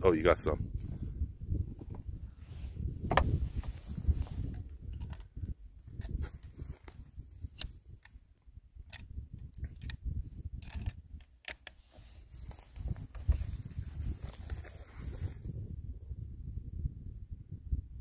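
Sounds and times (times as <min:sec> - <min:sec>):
rifle bolt clicks: 0:08.9 - 0:10.0, 0:10.6 - 0:11.8.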